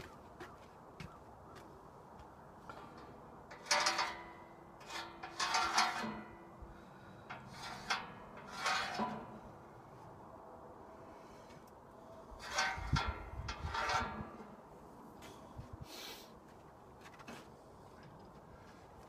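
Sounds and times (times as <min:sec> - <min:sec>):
steel sheet cut by hand: 0:03.6 - 0:06.4, 0:07.5 - 0:09.4.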